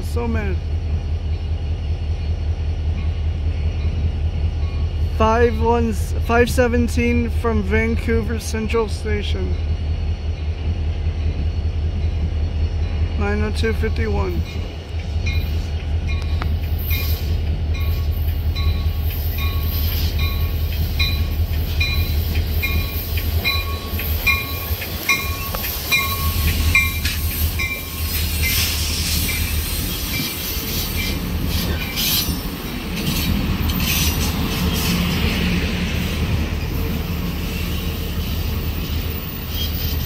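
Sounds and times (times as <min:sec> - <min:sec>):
train rumble: 0:00.0 - 0:40.0
train bell ringing: 0:02.9 - 0:05.6, 0:12.0 - 0:32.3
train wheels clattering on rails: 0:14.4 - 0:40.0.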